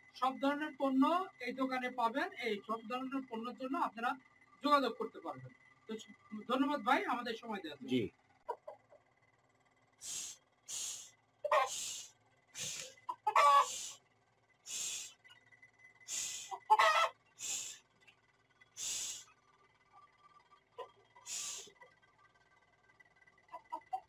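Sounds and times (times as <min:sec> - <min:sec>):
chickens clucking: 0:08.4 - 0:09.0, 0:10.0 - 0:14.0, 0:16.1 - 0:17.8, 0:23.4 - 0:24.0
chicken squawks: 0:08.5 - 0:08.8, 0:10.1 - 0:14.0, 0:16.1 - 0:17.8, 0:23.5 - 0:24.0
short breathy hisses: 0:10.0 - 0:13.0, 0:13.6 - 0:14.0, 0:14.7 - 0:15.2, 0:16.1 - 0:16.6, 0:17.4 - 0:17.8, 0:18.8 - 0:19.3, 0:21.3 - 0:21.8.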